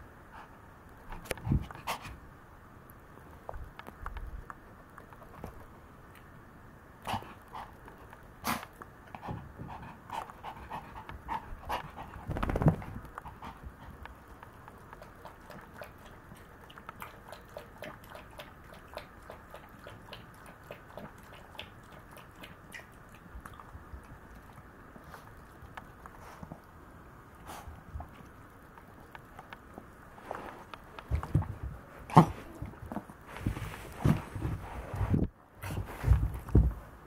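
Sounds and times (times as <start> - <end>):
dog panting and snuffling: 7.1 - 22.6, 26.1 - 26.6.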